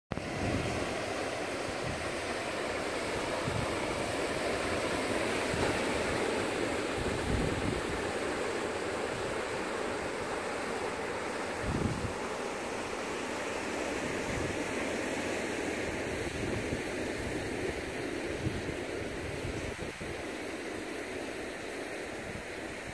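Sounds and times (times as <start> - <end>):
wind buffeting microphone: 0.1 - 10.6, 11.4 - 12.4, 14.0 - 20.7
surf washing over rocks: 0.1 - 22.9.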